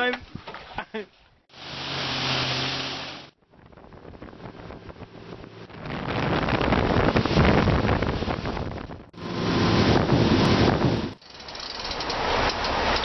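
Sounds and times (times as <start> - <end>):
wind buffeting microphone: 3.4 - 11.2.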